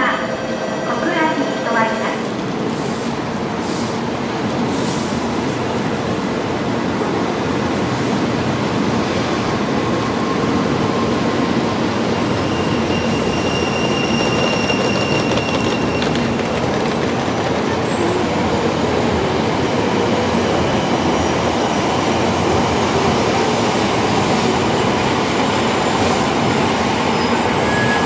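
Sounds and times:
train rushing past: 0.0 - 28.0.

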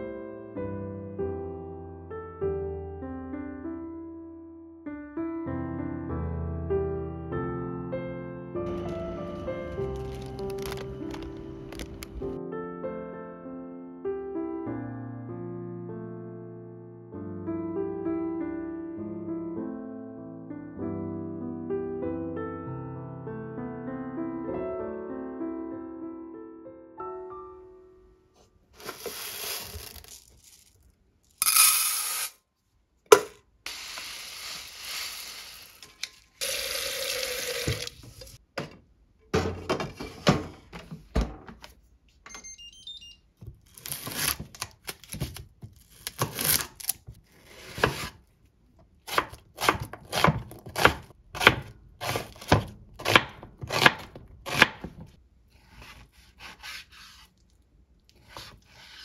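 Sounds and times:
water running from a tap: 36.4 - 38.4
knocks and clatter of handling: 38.0 - 41.8
knife slicing onion on cutting board: 43.7 - 48.2, 49.1 - 57.4, 58.1 - 59.0.

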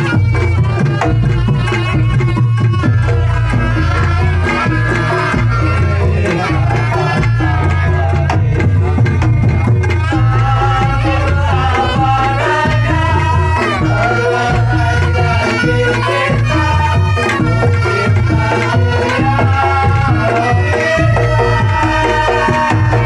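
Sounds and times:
hand drum beat: 0.0 - 23.0.

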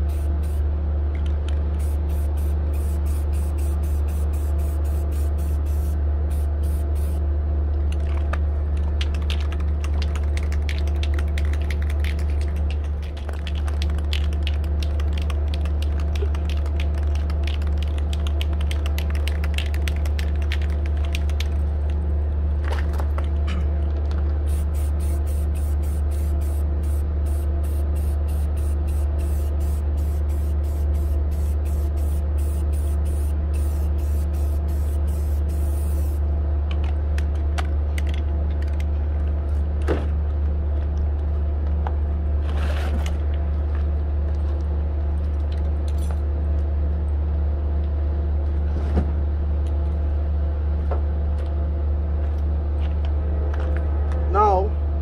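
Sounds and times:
spray paint can hissing: 0.0 - 0.6, 1.7 - 7.2, 24.4 - 36.2
steady low hum: 0.0 - 55.0.

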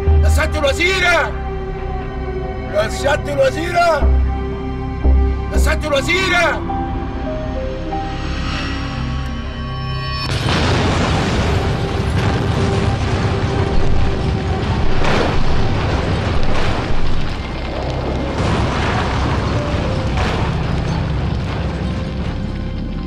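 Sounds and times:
bangs: 8.1 - 23.0
loud explosion blast: 10.2 - 22.5
rumbling fireball: 10.2 - 23.0.

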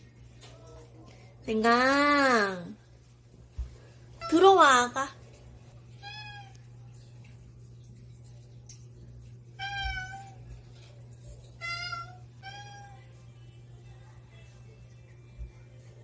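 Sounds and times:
cat meowing: 6.0 - 6.6, 9.6 - 10.4, 11.6 - 13.1.

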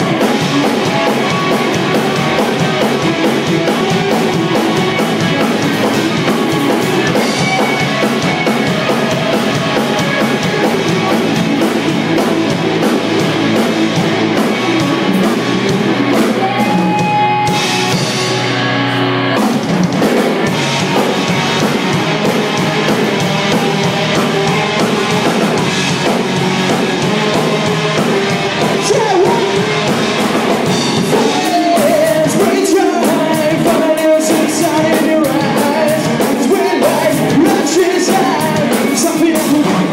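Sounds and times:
drum kit: 0.0 - 39.9
electric bass: 0.0 - 39.9
electric guitar: 0.0 - 39.9
person singing: 23.6 - 39.9.

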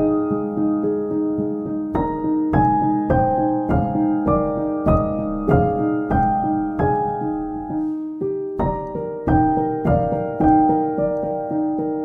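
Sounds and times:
slow piano melody: 0.0 - 12.0.

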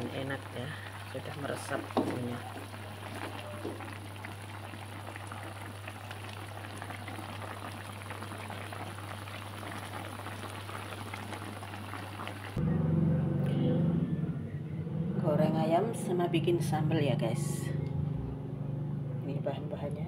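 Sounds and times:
broth bubbling and popping: 0.0 - 12.6
low hum: 12.6 - 19.5.

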